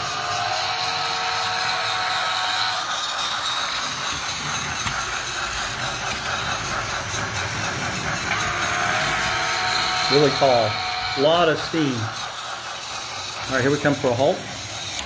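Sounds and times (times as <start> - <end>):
toy train motor whirring: 0.0 - 15.0.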